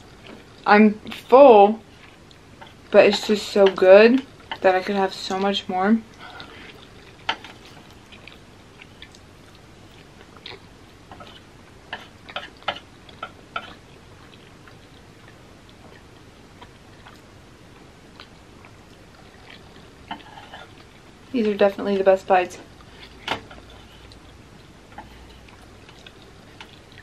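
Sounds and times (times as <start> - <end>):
soft chewing: 0.0 - 27.0.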